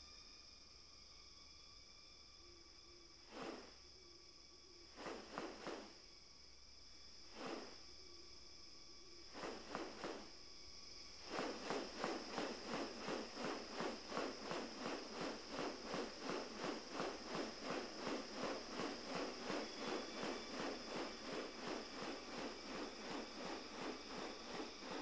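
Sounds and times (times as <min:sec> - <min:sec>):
high insect drone: 0:00.0 - 0:25.0
wings swishing: 0:03.3 - 0:03.8, 0:05.0 - 0:06.0, 0:07.3 - 0:07.8, 0:09.3 - 0:10.3, 0:11.2 - 0:25.0.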